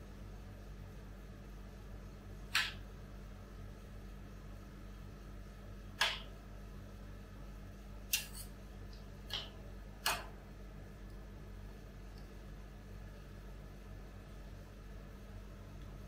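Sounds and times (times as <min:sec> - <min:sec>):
metal spatulas scraping: 0:08.2 - 0:08.6.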